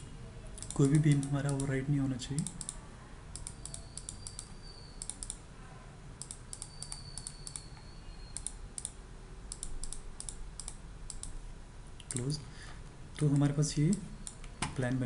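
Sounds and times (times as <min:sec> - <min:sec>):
computer mouse clicking: 0:00.6 - 0:01.8, 0:02.4 - 0:05.4, 0:06.2 - 0:11.4, 0:12.0 - 0:12.3.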